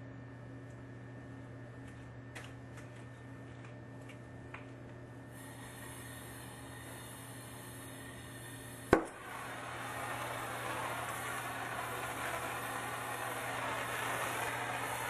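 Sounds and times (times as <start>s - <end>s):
faint steady hum: 0.0s - 15.0s
torch flame hiss: 5.3s - 15.0s
soldering torch igniting click: 8.8s - 15.0s.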